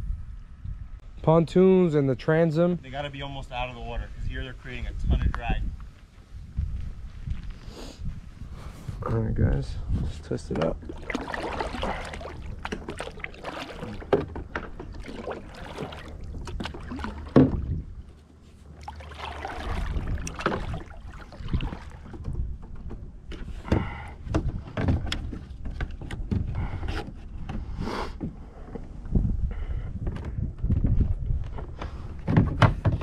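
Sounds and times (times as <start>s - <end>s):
paddle knocking on plastic hull: 10.5s - 17.9s, 18.8s - 26.7s
paddle splashing in water: 10.6s - 27.1s.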